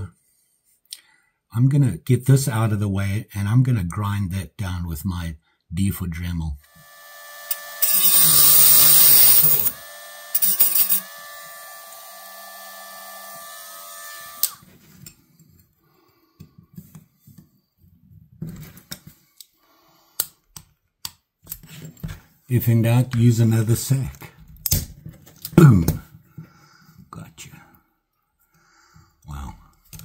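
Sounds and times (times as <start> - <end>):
rotary tool whine: 6.7 - 14.6
grinding metal: 7.1 - 14.5.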